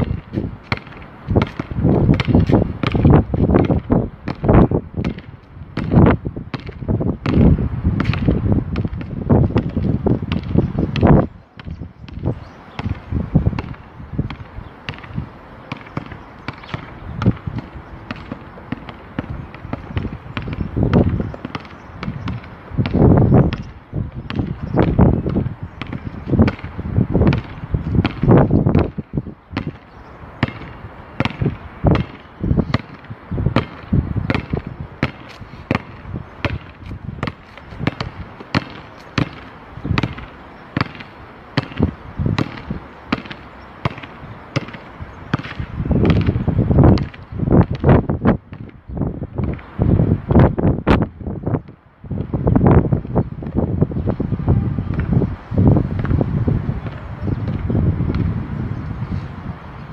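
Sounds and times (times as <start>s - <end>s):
basketball bouncing on hard court: 0.0s - 29.0s, 29.6s - 29.8s, 30.4s - 48.8s.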